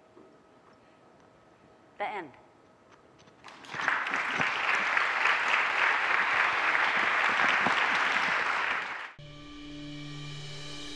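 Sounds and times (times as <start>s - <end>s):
audience applauding: 3.4s - 9.2s
music with held tones: 9.2s - 10.9s.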